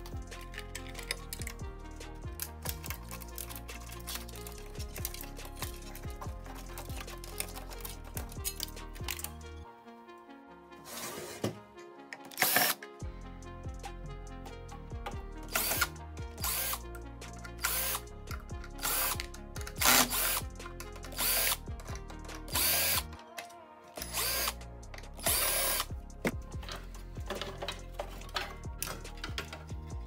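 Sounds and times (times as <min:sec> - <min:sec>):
cordless drill whirring: 0:12.4 - 0:12.8, 0:15.5 - 0:16.8, 0:17.6 - 0:18.0, 0:18.8 - 0:20.4, 0:21.1 - 0:21.6, 0:22.5 - 0:23.1, 0:24.0 - 0:24.6, 0:25.2 - 0:25.9.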